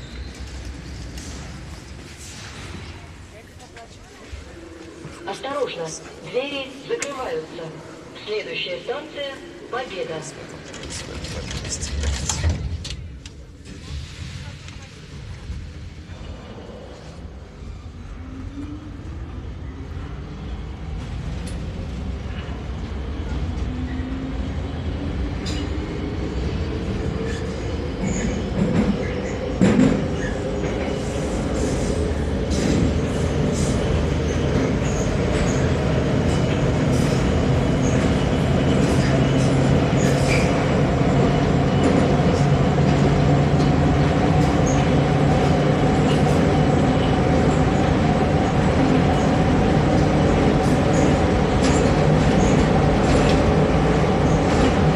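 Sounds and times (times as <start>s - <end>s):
train wheels on rails: 0.0s - 7.3s, 20.8s - 54.9s.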